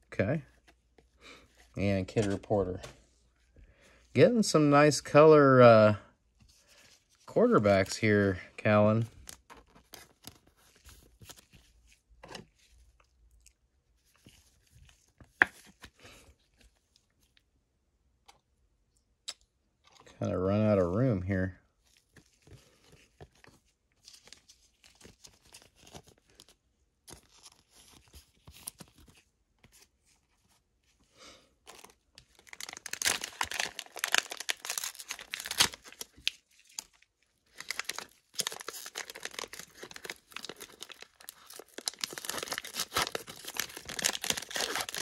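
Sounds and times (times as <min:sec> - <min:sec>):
trading cards rustling: 0:01.7 - 0:03.1, 0:31.7 - 0:45.0
plastic wrapper crinkling and tearing: 0:31.7 - 0:45.0.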